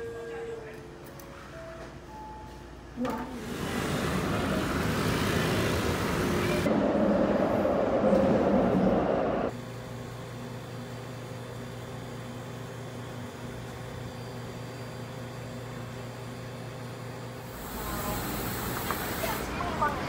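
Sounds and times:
room hum: 0:00.0 - 0:20.0
street traffic noise: 0:03.4 - 0:09.6, 0:17.5 - 0:20.0.

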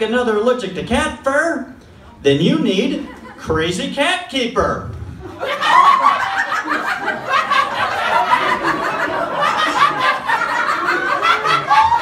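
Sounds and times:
audience laughing: 0:05.2 - 0:12.0.

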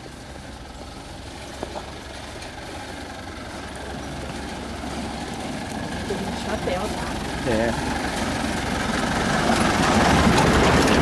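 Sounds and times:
pickup truck engine running: 0:00.0 - 0:11.0.

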